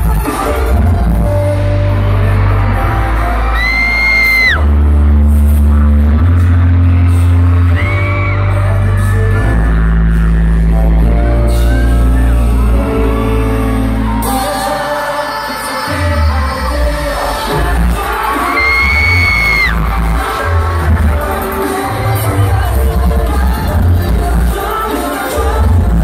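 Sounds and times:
pop dance track with heavy bass: 0.0s - 13.3s, 14.0s - 26.0s
group singing: 11.4s - 26.0s.

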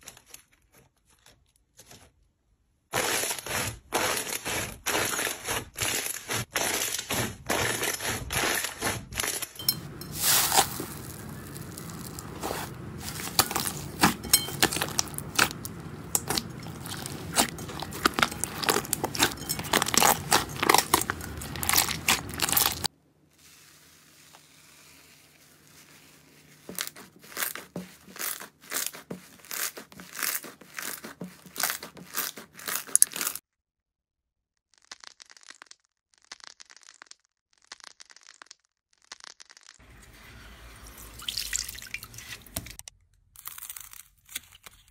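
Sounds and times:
slime crackling and squishing: 3.0s - 33.4s
crinkly plastic wrap: 9.2s - 33.4s.

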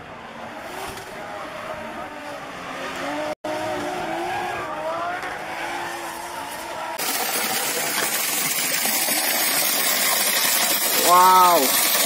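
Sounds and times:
car engine noise: 0.0s - 12.0s
stream water flowing: 5.4s - 12.0s.

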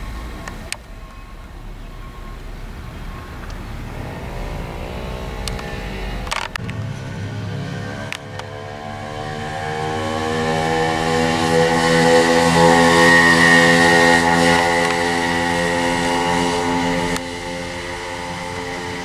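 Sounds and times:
moped engine passing by: 2.8s - 19.0s.

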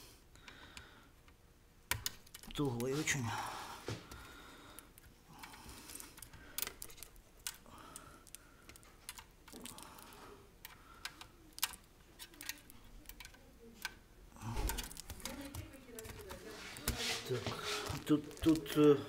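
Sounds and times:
small plastic and metal clicks: 5.0s - 9.9s, 10.6s - 14.0s.

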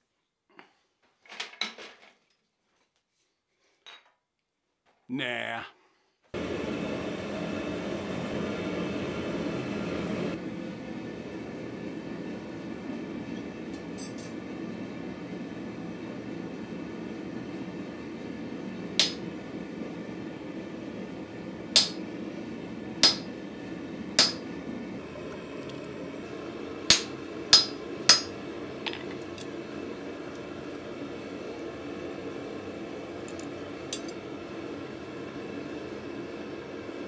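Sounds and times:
gas forge roar: 6.4s - 37.0s
hammer striking chisel on metal: 23.0s - 23.3s, 24.2s - 24.4s, 26.9s - 29.1s.

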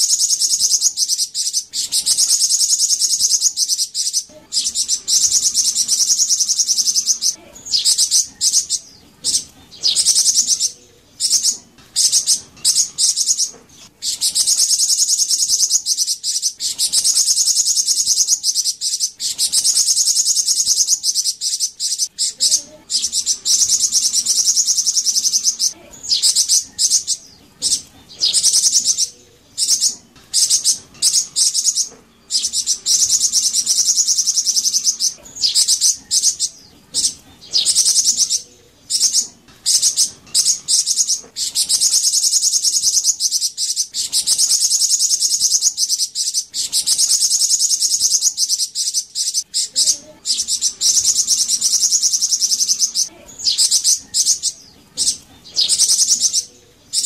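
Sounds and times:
bird trilling twitter: 0.0s - 57.0s.

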